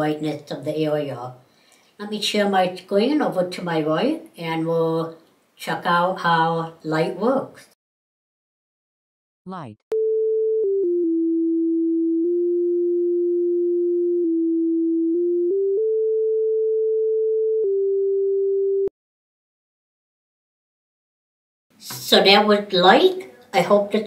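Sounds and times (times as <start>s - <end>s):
electronic tone changing pitch: 9.5s - 18.9s.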